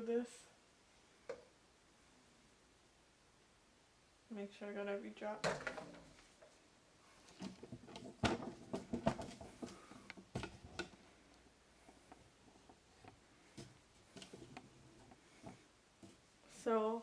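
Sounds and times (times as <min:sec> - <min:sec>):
plastic parts clicking and knocking: 0:07.3 - 0:11.0.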